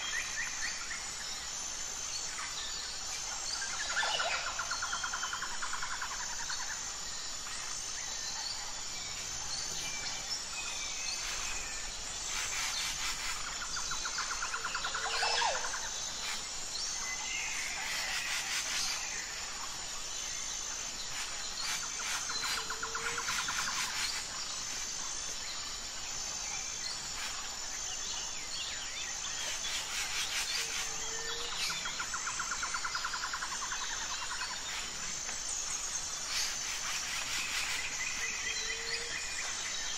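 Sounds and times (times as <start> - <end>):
high insect buzz: 9.5 - 20.4, 21.0 - 39.9.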